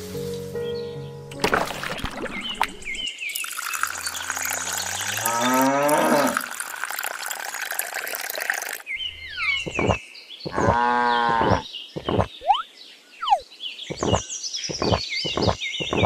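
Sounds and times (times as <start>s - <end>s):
water trickling into a trough: 1.3s - 8.9s
cow mooing: 5.1s - 6.5s, 10.6s - 11.6s.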